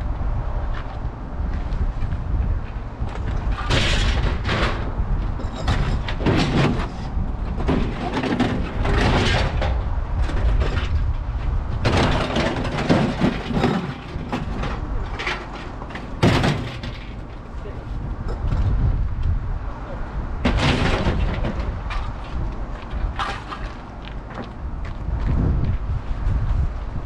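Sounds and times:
steady low rumble: 0:00.0 - 0:27.0
scrap metal clattering and clanging: 0:03.2 - 0:11.1, 0:11.8 - 0:17.8, 0:20.4 - 0:23.9.

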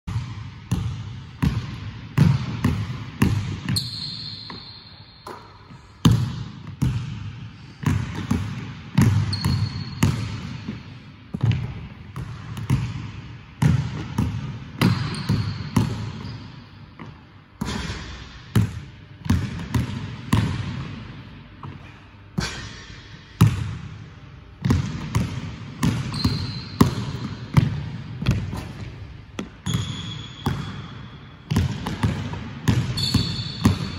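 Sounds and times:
shoe squeaks: 0:03.7 - 0:05.3, 0:09.3 - 0:10.0, 0:14.9 - 0:16.6, 0:26.1 - 0:27.4, 0:29.6 - 0:31.2, 0:32.9 - 0:33.9
basketball bouncing on hardwood: 0:31.5 - 0:33.9.

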